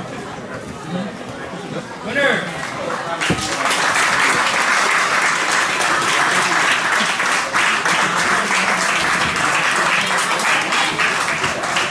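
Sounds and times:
audience applauding: 3.1s - 11.9s.

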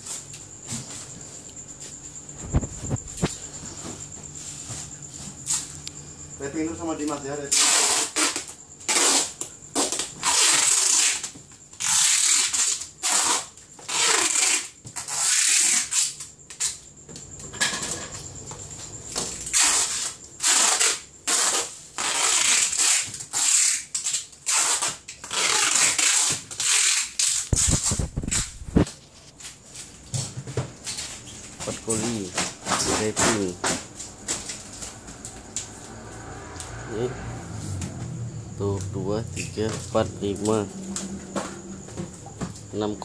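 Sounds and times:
packing tape rasping off roll: 7.5s - 16.8s, 19.4s - 28.9s.

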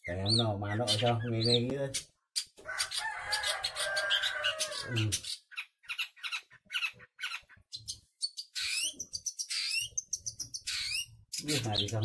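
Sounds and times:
bird sharp chirps: 0.0s - 12.0s
bird harsh squawk: 2.7s - 12.0s.

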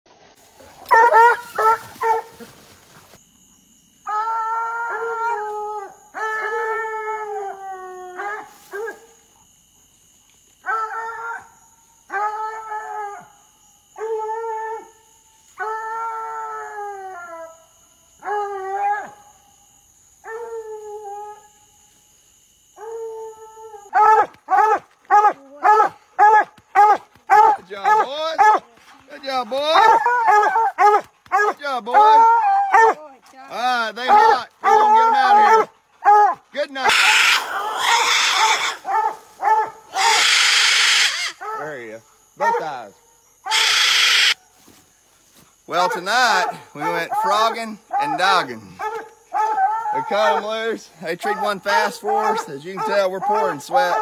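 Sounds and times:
dog barking: 0.9s - 2.4s, 23.9s - 28.7s, 29.8s - 33.0s, 34.1s - 36.4s, 37.3s - 40.2s, 42.4s - 42.8s, 47.9s - 50.6s, 51.2s - 54.0s
dog howling: 4.0s - 9.0s, 10.6s - 15.0s, 15.6s - 19.2s, 22.8s - 28.6s, 29.6s - 33.0s, 33.6s - 41.8s, 48.8s - 50.5s, 51.2s - 54.0s.

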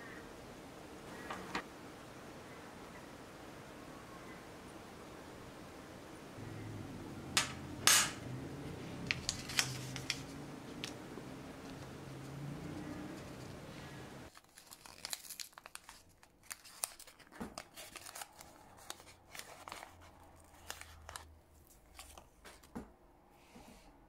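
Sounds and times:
low steady hum: 0.0s - 14.3s
paper packet crinkling: 9.0s - 11.0s, 14.3s - 22.7s.

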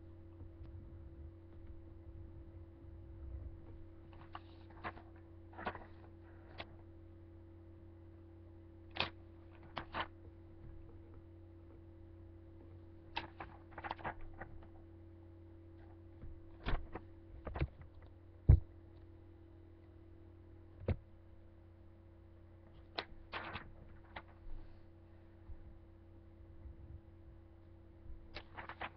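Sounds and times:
steady low hum: 0.0s - 28.9s
paper rustling: 4.1s - 6.7s, 8.9s - 10.2s, 13.1s - 14.7s, 23.0s - 24.5s, 28.3s - 28.9s.

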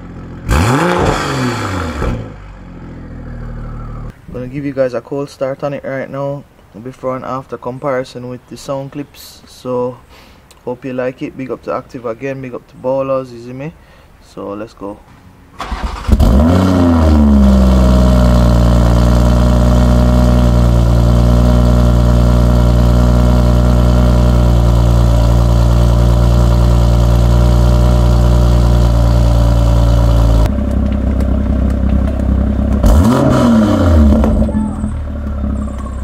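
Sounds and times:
car engine starting and idling: 0.0s - 4.2s, 15.5s - 36.0s.

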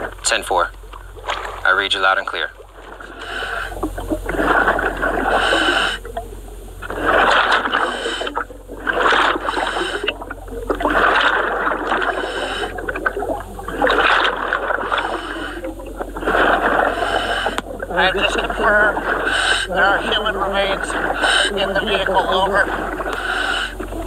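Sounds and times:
air bubbles rushing: 0.0s - 24.0s
diver breathing through regulator: 2.8s - 24.0s.

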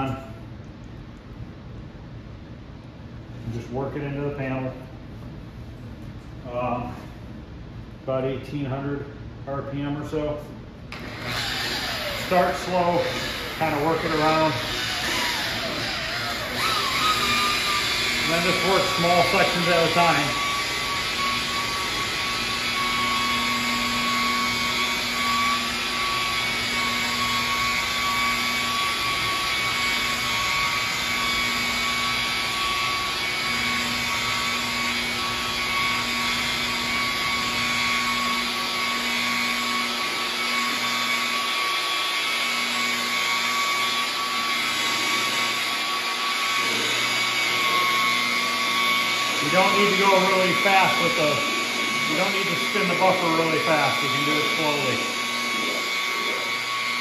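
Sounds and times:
rotary polisher motor whine: 10.9s - 57.0s.

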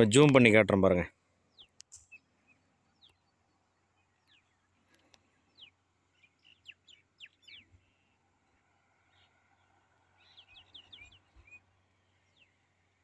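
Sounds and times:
faint bird chirps: 1.4s - 13.0s.

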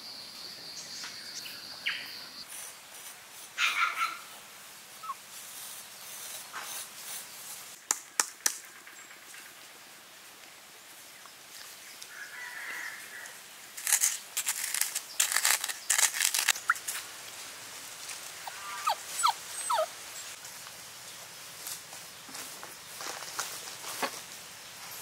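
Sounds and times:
stick scraping a bowl: 13.8s - 16.6s
puppy whimpering: 18.4s - 19.9s.

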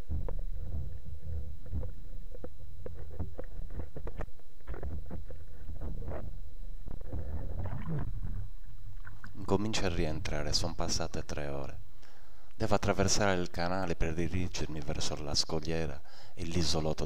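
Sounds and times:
clicks and crackles: 0.0s - 9.4s.

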